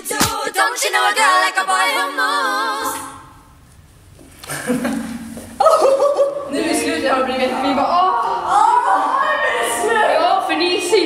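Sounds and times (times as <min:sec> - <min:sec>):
singing with vibrato: 0:00.0 - 0:03.5
voices: 0:05.6 - 0:11.0.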